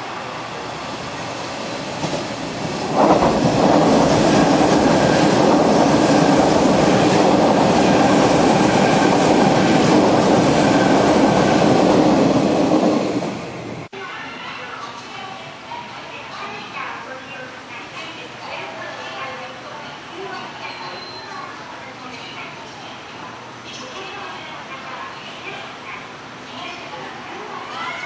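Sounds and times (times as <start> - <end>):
electric train passing at speed: 0.0 - 13.9
wheels rushing on rail: 0.0 - 13.9.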